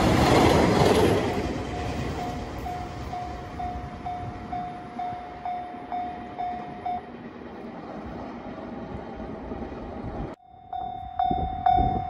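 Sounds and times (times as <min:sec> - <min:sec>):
level crossing bell ringing: 0:01.6 - 0:07.1, 0:10.4 - 0:12.0.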